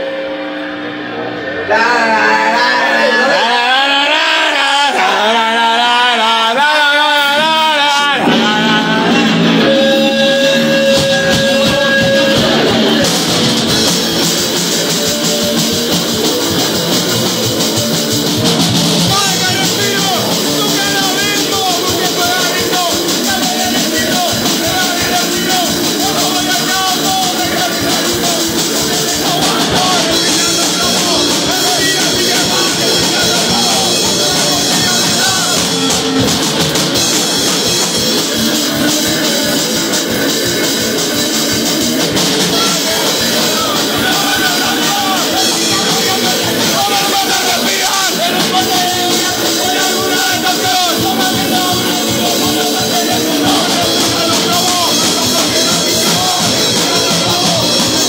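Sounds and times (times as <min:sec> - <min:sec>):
punk rock band playing: 0:00.0 - 0:58.0
shouted vocals: 0:00.0 - 0:58.0
drum kit with cymbals: 0:03.3 - 0:58.0.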